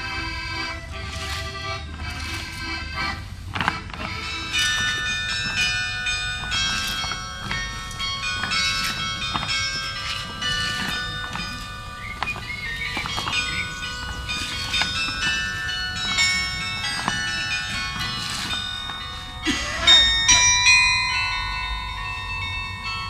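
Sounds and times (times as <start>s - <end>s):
carillon bells playing a tune: 0.0s - 23.0s.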